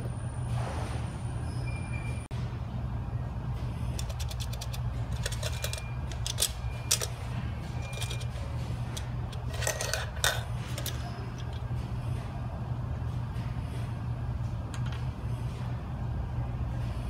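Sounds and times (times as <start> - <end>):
metal springs clicking and clinking: 3.9 - 11.6.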